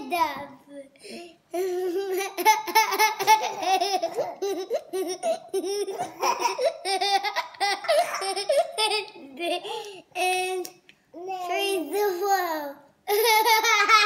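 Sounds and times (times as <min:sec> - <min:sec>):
child giggling: 0:01.5 - 0:09.9, 0:13.1 - 0:14.0.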